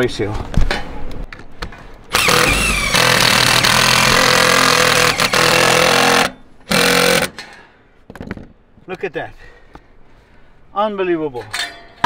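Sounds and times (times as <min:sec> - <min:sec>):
power drill driving screw into metal: 0:02.1 - 0:07.5.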